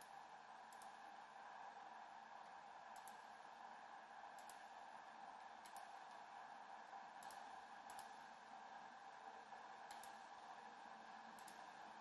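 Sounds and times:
computer mouse clicks: 0.0 - 1.0, 2.4 - 3.3, 4.3 - 4.7, 5.6 - 6.2, 7.2 - 8.3, 9.8 - 10.4, 11.2 - 11.8
faint steady hiss: 0.0 - 12.0.

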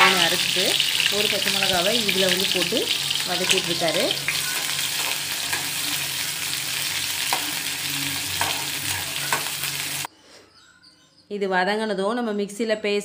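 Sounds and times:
onions sizzling in hot oil: 0.0 - 10.1.

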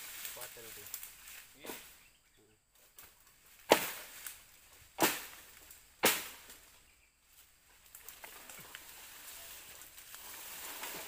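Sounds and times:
light crackling and rustling: 0.0 - 2.0, 2.7 - 11.0
chopping blows into bamboo: 3.7 - 4.1, 5.0 - 5.4, 6.0 - 6.6.

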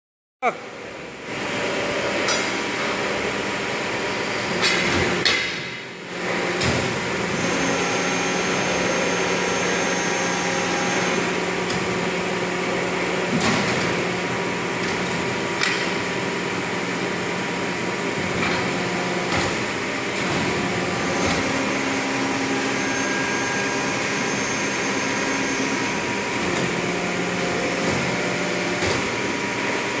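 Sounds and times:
machine hum: 0.7 - 30.0
sharp clicks and clunks of clamps: 4.6 - 5.8, 15.6 - 16.0.

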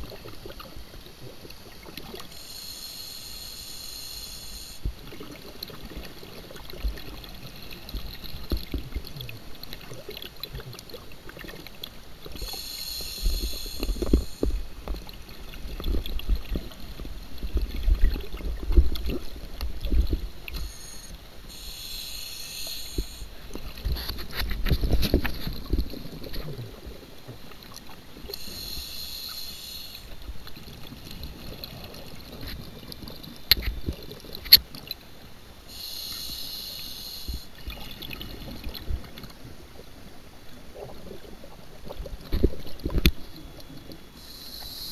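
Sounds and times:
hissing regulator inhalations: 2.3 - 4.9, 12.4 - 14.6, 20.5 - 23.3, 28.3 - 30.2, 35.7 - 37.5, 44.2 - 44.9
exhaled bubbles burbling: 13.2 - 20.7.

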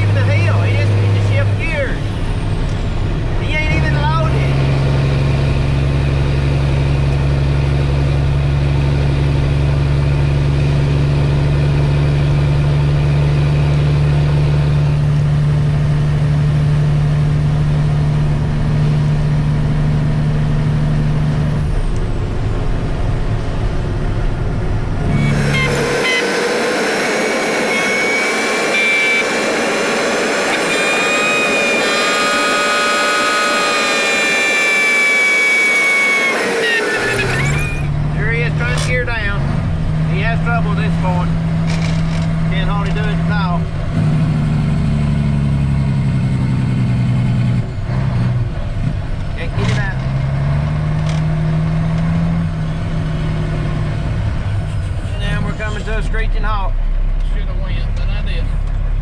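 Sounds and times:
diesel truck engine running: 0.0 - 59.0
high-pitched whine: 21.6 - 38.0.

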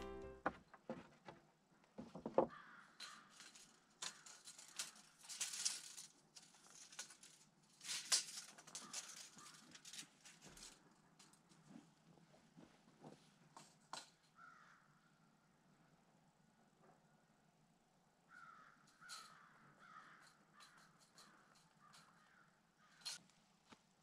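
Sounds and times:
wooden boards knocking: 0.0 - 2.6.

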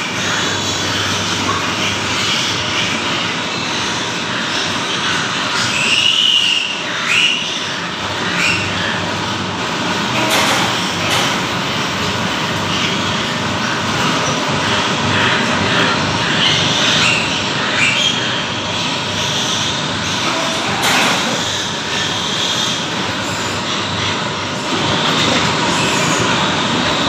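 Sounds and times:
ventilation fans whirring: 0.0 - 27.0
piglets squeaking: 8.3 - 9.0.

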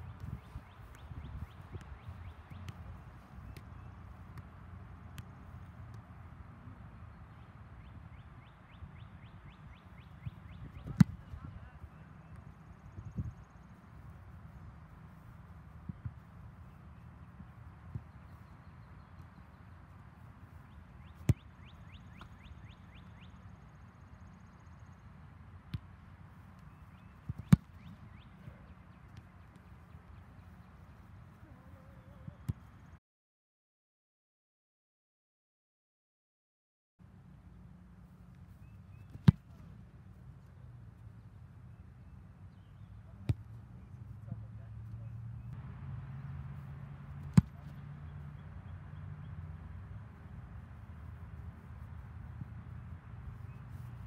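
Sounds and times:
football thudding: 27.3 - 28.0, 47.3 - 47.5.

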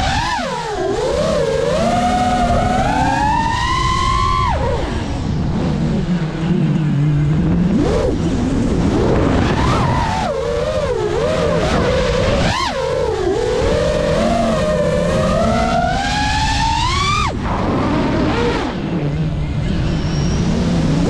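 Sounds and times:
drone propellers whining: 0.0 - 21.0.

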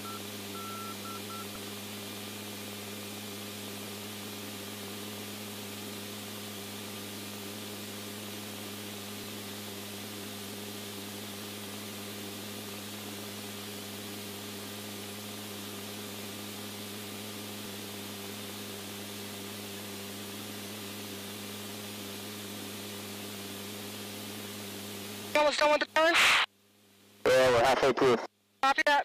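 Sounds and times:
low electrical hum: 3.3 - 28.6
radio static hiss: 25.3 - 26.5, 27.2 - 29.0.

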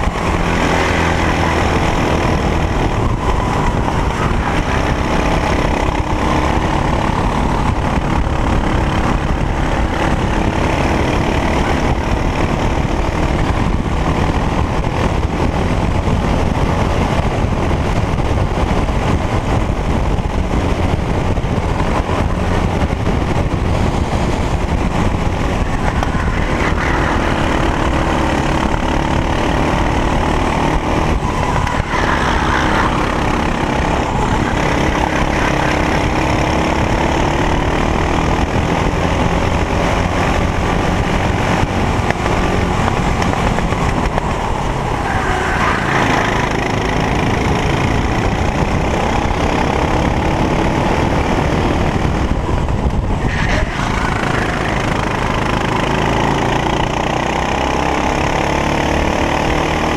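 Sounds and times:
kart engine revving: 0.0 - 59.9.

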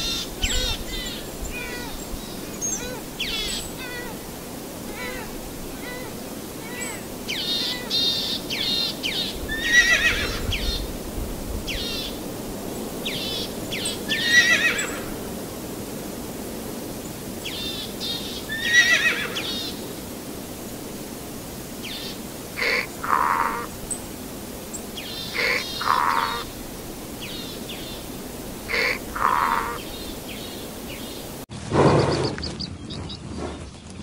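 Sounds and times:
horse whinnying: 9.6 - 10.4, 14.2 - 14.8, 18.6 - 19.4.

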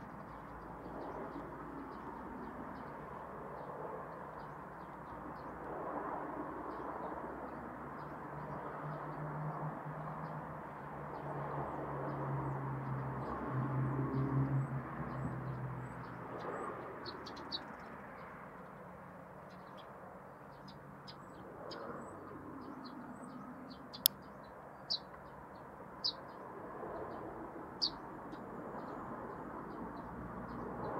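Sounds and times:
small birds chirping: 15.5 - 30.9.

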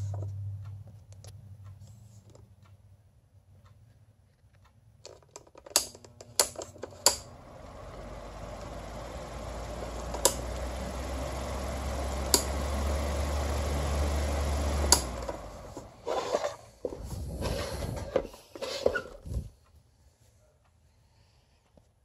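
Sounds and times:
fan motor hum and air rush: 6.4 - 18.2
fan switch clicks: 10.1 - 10.8, 12.2 - 12.6, 14.8 - 15.4.

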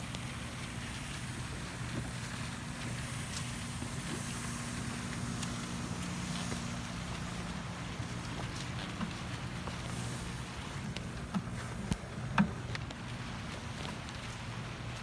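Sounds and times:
even hiss: 0.0 - 8.8, 9.4 - 12.2
low mechanical hum: 0.0 - 15.0.

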